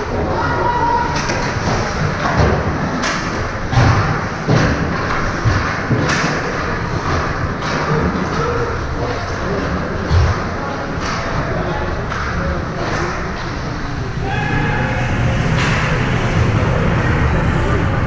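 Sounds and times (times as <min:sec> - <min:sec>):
puck thudding against boards: 0:01.2 - 0:08.6.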